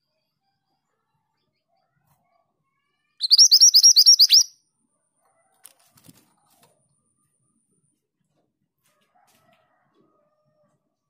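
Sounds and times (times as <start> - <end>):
bird singing high arching notes: 3.2 - 4.5.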